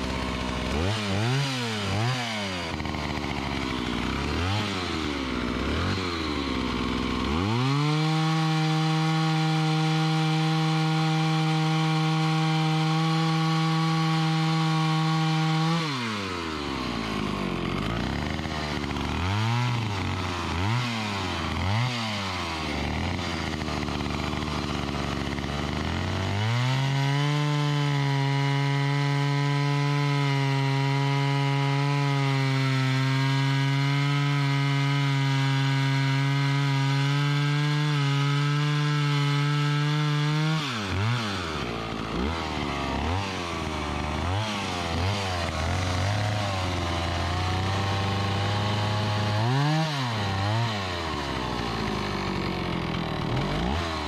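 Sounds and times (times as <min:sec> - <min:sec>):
chainsaw cutting tree trunk: 0:00.0 - 0:54.0.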